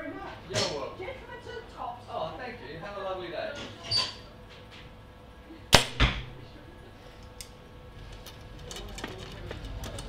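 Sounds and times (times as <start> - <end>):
faint clicks and handling noise: 7.2 - 10.0.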